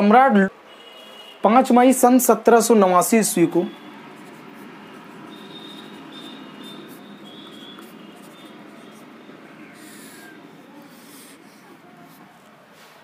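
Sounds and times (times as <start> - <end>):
steady background noise: 0.0 - 13.0
marker squeaking on whiteboard: 3.6 - 12.5.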